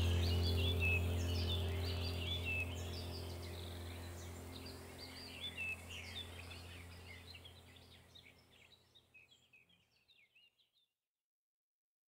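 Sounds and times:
steady low hum: 0:00.0 - 0:09.4
small birds chirping: 0:00.0 - 0:10.9.

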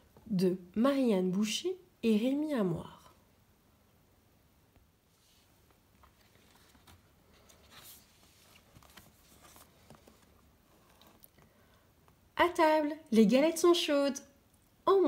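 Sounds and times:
paper rustling: 0:05.1 - 0:11.4
book pages turning: 0:05.2 - 0:11.5.

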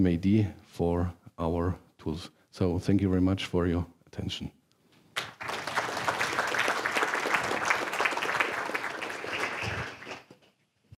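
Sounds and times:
audience applauding: 0:05.2 - 0:10.5.

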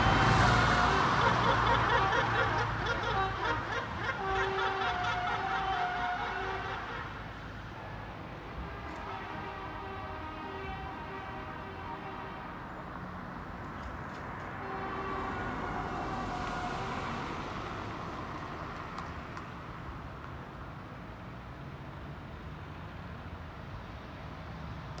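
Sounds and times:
car engines running: 0:00.0 - 0:06.6
horn tooting: 0:00.0 - 0:07.3, 0:08.4 - 0:12.8, 0:13.4 - 0:18.7.

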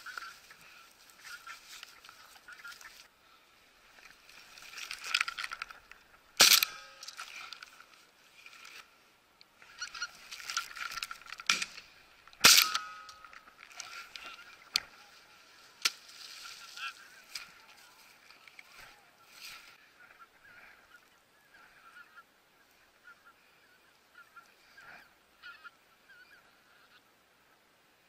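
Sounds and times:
geese honking: 0:00.0 - 0:03.4, 0:09.6 - 0:27.1
faint sharp cracks: 0:04.0 - 0:08.9, 0:09.9 - 0:15.0, 0:15.8 - 0:18.7
shotgun shots: 0:06.4 - 0:07.0, 0:12.4 - 0:13.1.

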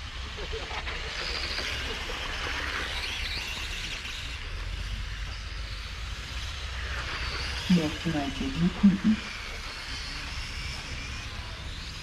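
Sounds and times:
rc car motor whine: 0:00.0 - 0:12.0.

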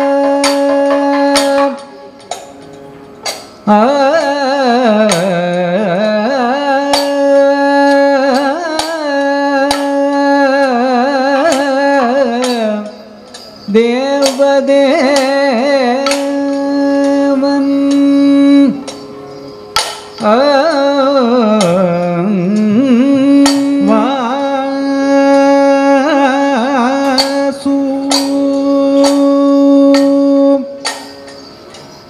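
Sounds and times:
person singing long ornamented notes: 0:00.0 - 0:32.0
sharp percussion strikes: 0:00.0 - 0:32.0.

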